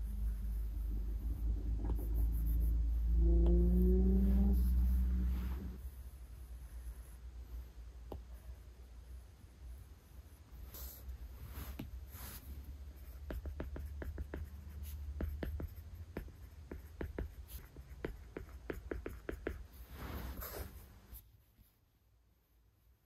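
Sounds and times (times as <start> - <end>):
soft brushing sounds: 4.0 - 22.1.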